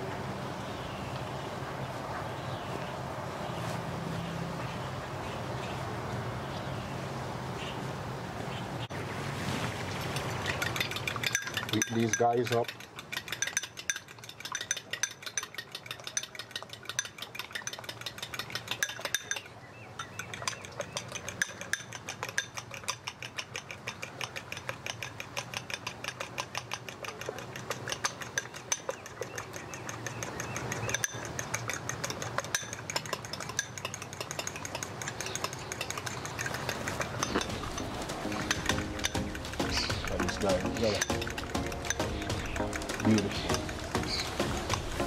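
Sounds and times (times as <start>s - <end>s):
utensil stirring in a bowl: 10.0s - 45.0s.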